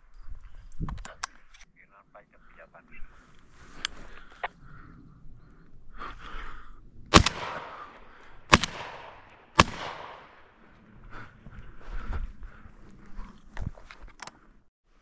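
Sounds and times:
shotgun shots: 7.1s - 10.4s.

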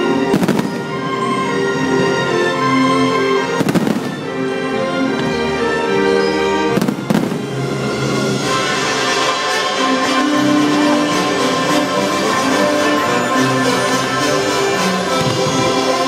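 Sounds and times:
loud show music: 0.0s - 16.0s
fireworks bursting: 0.3s - 1.0s, 3.6s - 4.3s, 6.8s - 7.6s.

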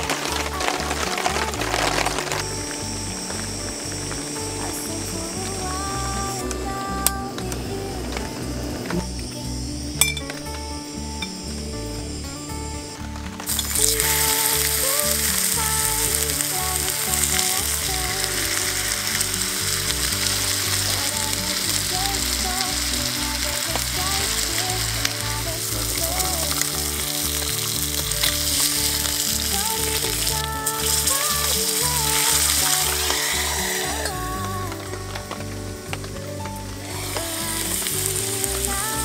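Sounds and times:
bacon sizzling in a frying pan: 13.5s - 34.1s.

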